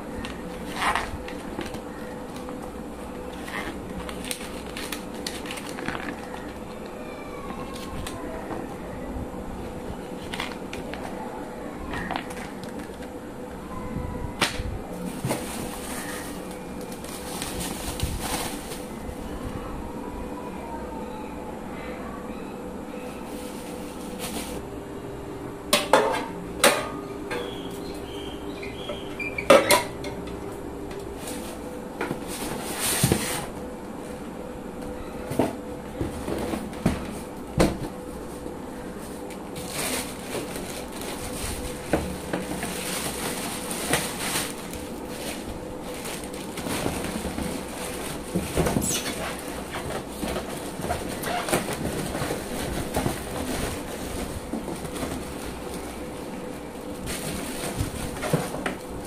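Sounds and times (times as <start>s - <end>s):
plastic wrapping crinkling: 0.2s - 7.0s, 15.0s - 19.4s, 38.2s - 59.0s
crisper plate clattering: 39.6s - 55.8s.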